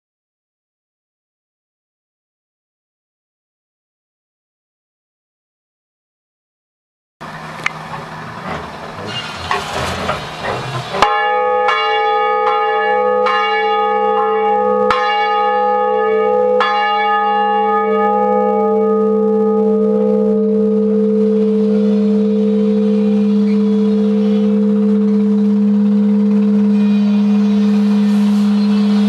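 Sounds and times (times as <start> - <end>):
bell deep hum: 10.9 - 29.0
church bell ringing: 10.9 - 29.0.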